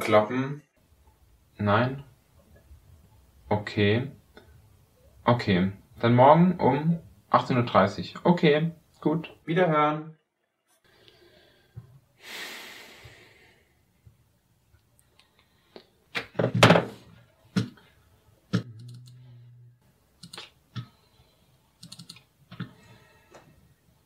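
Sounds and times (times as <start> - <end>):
heavy thunks on desk: 16.3 - 17.0
keyboard keystrokes: 20.2 - 20.5, 21.8 - 22.2
mouse clicks: 20.2 - 20.5.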